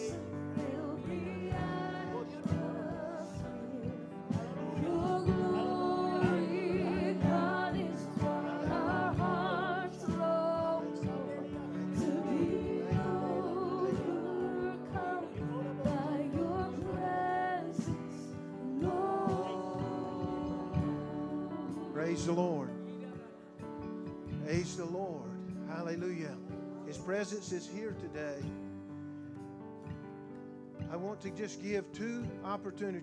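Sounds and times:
women singing gospel with vibrato: 0.0s - 22.9s
congregation praising aloud: 0.0s - 23.6s
instrumental backing music: 0.0s - 33.0s.

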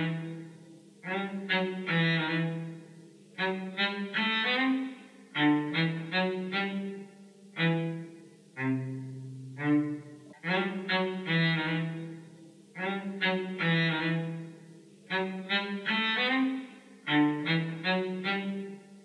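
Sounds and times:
low bowed strings music: 7.6s - 12.2s.

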